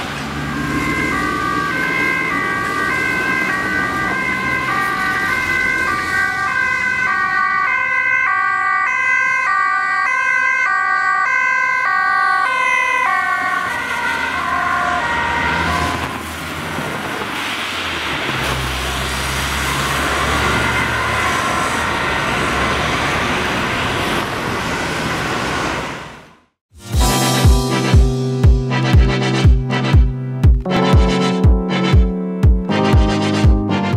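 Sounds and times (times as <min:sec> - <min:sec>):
passing vehicle engine rumble: 0:00.0 - 0:07.3, 0:13.3 - 0:26.3
road traffic noise: 0:00.0 - 0:33.9
ambulance two-tone siren: 0:00.4 - 0:16.4, 0:19.6 - 0:24.0.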